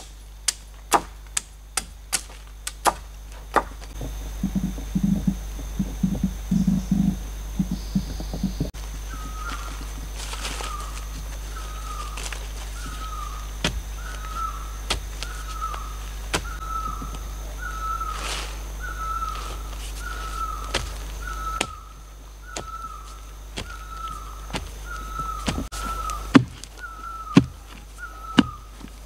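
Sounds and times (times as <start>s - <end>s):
bird short falling call: 7.6s - 28.8s.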